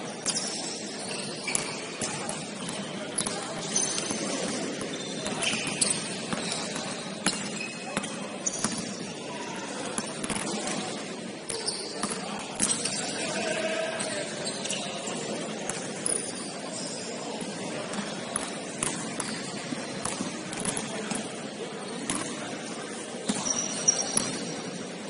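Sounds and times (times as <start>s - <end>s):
shoe squeaks: 0.2s - 2.0s, 2.6s - 8.9s, 11.6s - 13.1s, 14.4s - 15.2s, 16.0s - 17.2s, 23.2s - 24.6s
players' voices: 0.3s - 25.0s
basketball bouncing on court: 1.4s - 9.0s, 10.0s - 10.9s, 11.5s - 13.0s, 17.9s - 21.3s, 23.2s - 24.5s.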